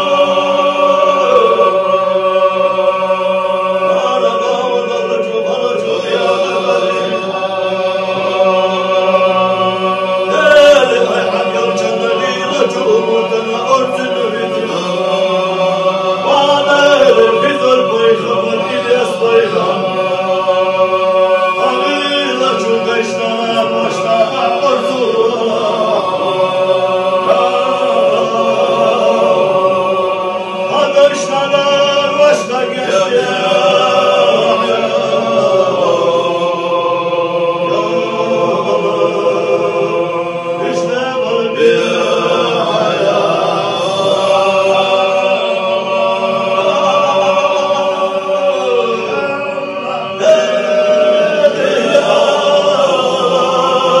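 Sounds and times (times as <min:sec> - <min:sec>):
men chanting devotional song: 0:00.0 - 0:54.0.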